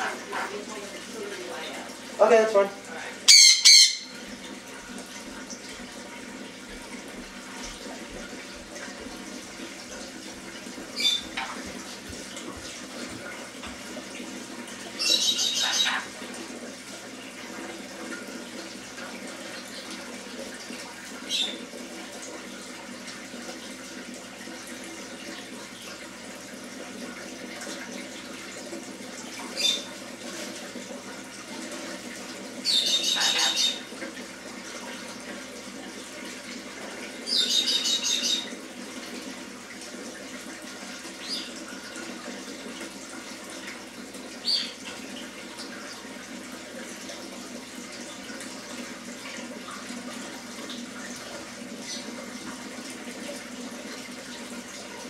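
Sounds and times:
water running: 0:00.0 - 0:55.0
parrot screeching: 0:03.3 - 0:04.2, 0:15.0 - 0:16.1, 0:32.7 - 0:33.8.

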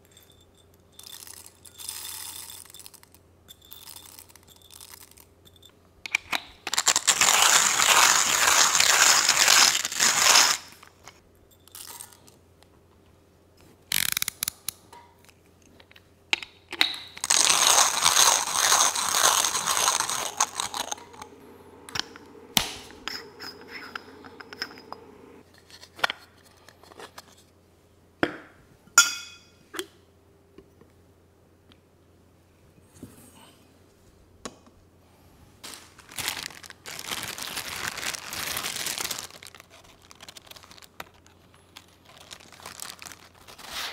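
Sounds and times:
hand coffee grinder grinding beans: 0:06.1 - 0:10.9, 0:17.1 - 0:25.4.

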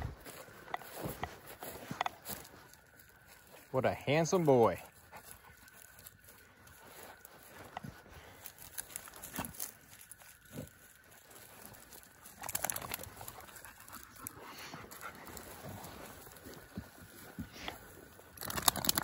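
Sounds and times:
dogs rustling in dry grass: 0:00.0 - 0:19.0
dogs panting: 0:04.4 - 0:19.0.

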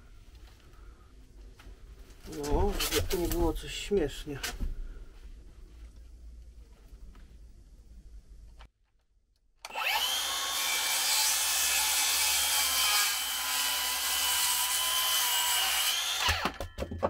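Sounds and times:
circular saw cutting wood: 0:09.6 - 0:16.6.

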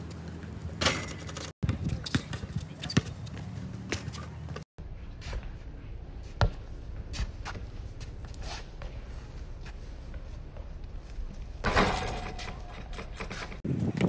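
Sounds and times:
ball hitting metal hoop: 0:00.8 - 0:02.4, 0:11.6 - 0:12.6
basketball bouncing: 0:00.8 - 0:04.6.

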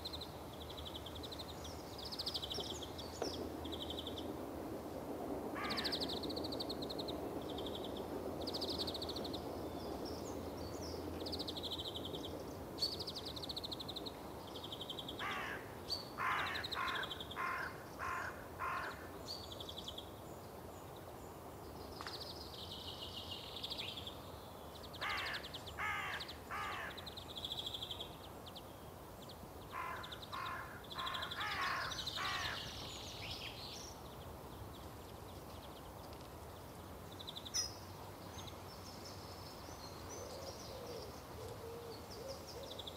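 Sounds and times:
harsh crow-like caws: 0:05.6 - 0:06.0, 0:15.2 - 0:19.1, 0:25.0 - 0:27.1, 0:29.7 - 0:32.7
small birds chirping: 0:05.6 - 0:42.9.

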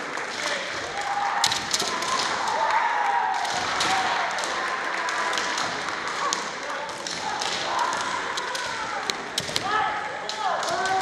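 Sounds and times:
bamboo swords clacking: 0:00.0 - 0:02.7, 0:03.3 - 0:11.0.

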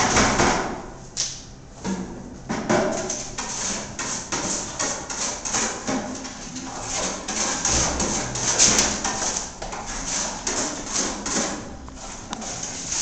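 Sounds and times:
trowel scraping a wall: 0:03.1 - 0:13.0.

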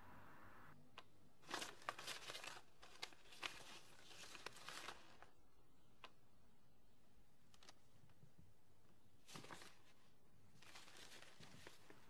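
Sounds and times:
paper rustling and crinkling: 0:01.4 - 0:05.4, 0:07.5 - 0:08.2, 0:09.2 - 0:12.0.

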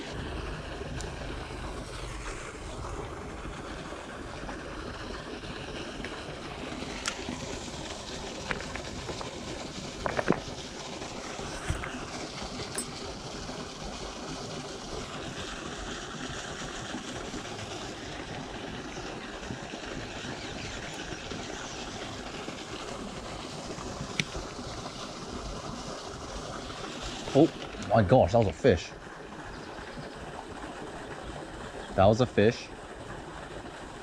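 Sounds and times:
river water rushing: 0:00.0 - 0:13.5
faint clicks and knocks: 0:08.4 - 0:09.4, 0:10.0 - 0:10.4.

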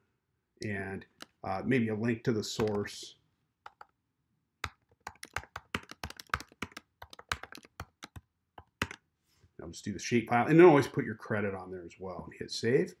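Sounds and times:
typing on a keyboard: 0:02.6 - 0:02.9, 0:03.7 - 0:03.9, 0:04.6 - 0:09.0.

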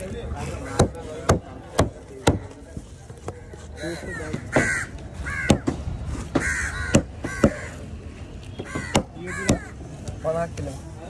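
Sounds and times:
crows cawing: 0:00.6 - 0:01.0, 0:03.4 - 0:09.8.

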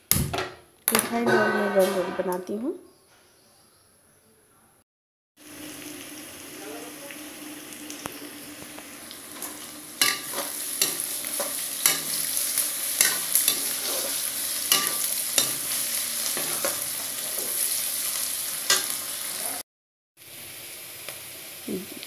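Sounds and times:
onions sizzling in oil: 0:05.4 - 0:19.6, 0:20.2 - 0:22.0
metal ladle scraping a pan: 0:09.4 - 0:17.8.

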